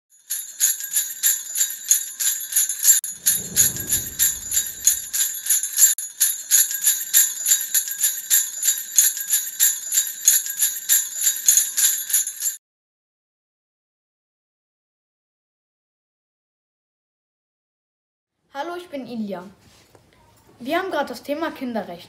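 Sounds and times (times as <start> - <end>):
sleigh bells shaking: 0.1 - 12.6
low rumble: 3.0 - 5.4.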